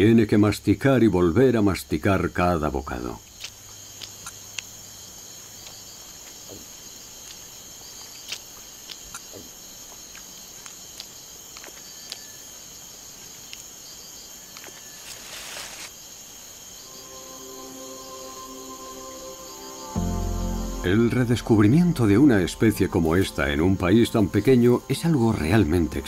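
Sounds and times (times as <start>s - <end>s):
crickets and insects trilling: 0.0s - 26.0s
brief rustle: 14.6s - 16.0s.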